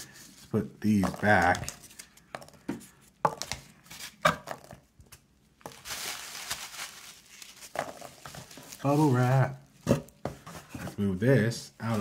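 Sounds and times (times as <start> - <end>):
packing material rustling in box: 5.7 - 9.6.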